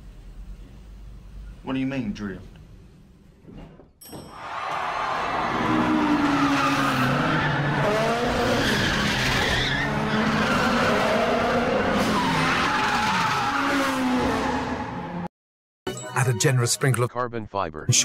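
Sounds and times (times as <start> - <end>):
car engine revving: 5.5 - 12.5.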